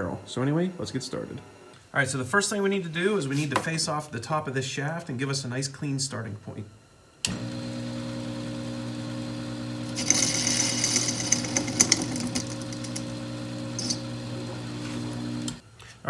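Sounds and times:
lathe motor hum: 7.3 - 15.6.

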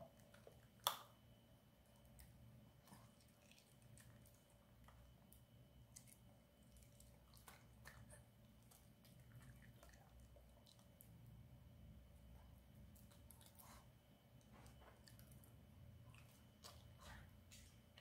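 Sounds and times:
dog chewing wetly: 2.0 - 11.3.

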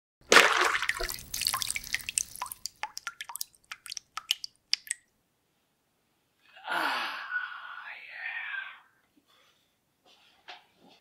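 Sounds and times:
liquid splash: 0.2 - 5.1
drops plinking: 0.9 - 5.0.

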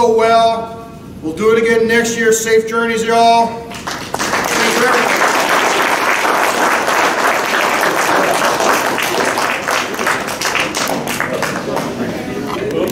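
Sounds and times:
audience applauding: 3.7 - 12.4.

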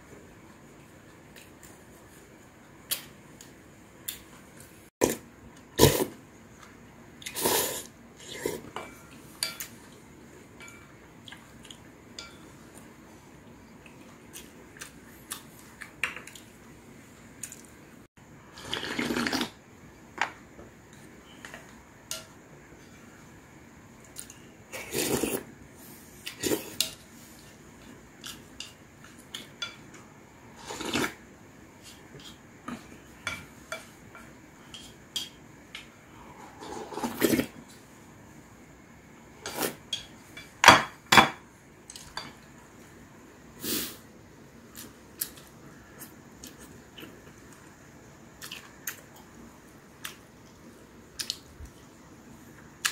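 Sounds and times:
soup slurping: 18.6 - 19.6.

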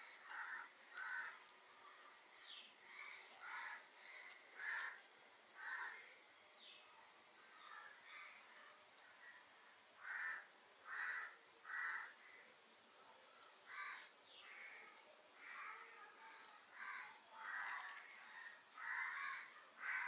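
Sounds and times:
bird cawing: 0.0 - 1.4, 2.8 - 5.0, 5.6 - 6.2, 10.0 - 12.5, 13.7 - 20.0.

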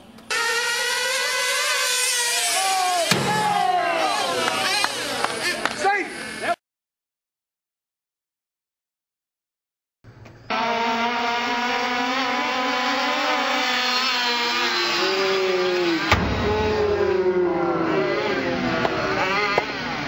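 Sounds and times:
sharp knock: 3.1 - 3.6, 16.1 - 16.9.

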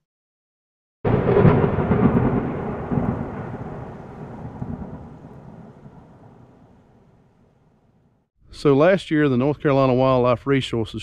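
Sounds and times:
thunder crack and rumble: 1.1 - 8.2.

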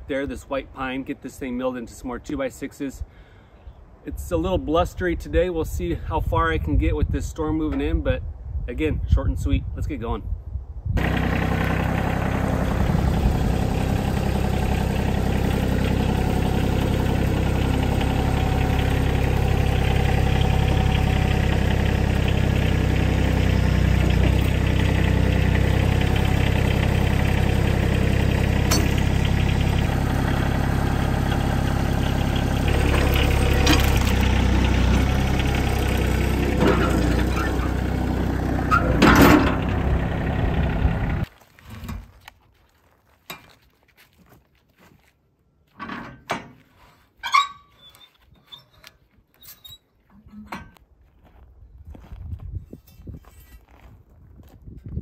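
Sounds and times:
tractor diesel engine running: 11.0 - 41.3
metal knocks and clanks: 28.6 - 29.8, 38.8 - 39.7, 50.2 - 50.8.

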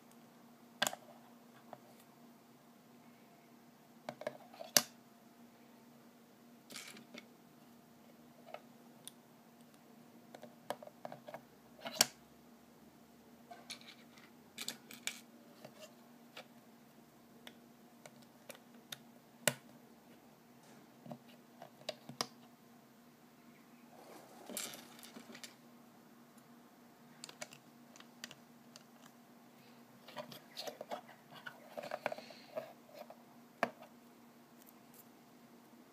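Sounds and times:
faint steady hum: 0.0 - 35.9.

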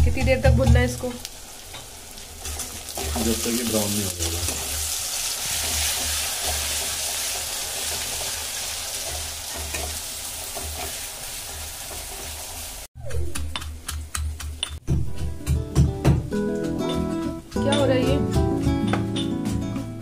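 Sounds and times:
onions sizzling in hot oil: 0.1 - 12.9
spatula scraping pan: 5.4 - 12.4.

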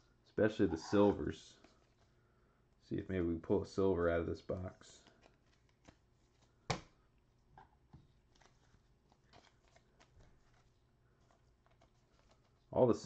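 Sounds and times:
trading cards clicking and rustling: 4.5 - 7.0, 8.0 - 12.7.

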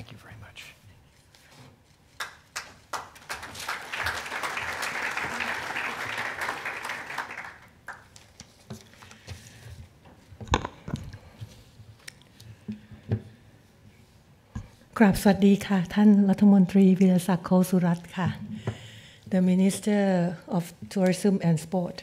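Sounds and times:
audience clapping: 2.1 - 8.3.

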